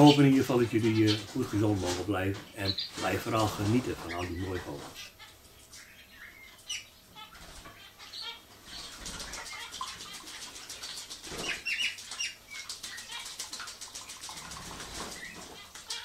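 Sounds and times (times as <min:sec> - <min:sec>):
finches chirping: 0:00.0 - 0:16.0
parrot wings fluttering: 0:08.7 - 0:16.0.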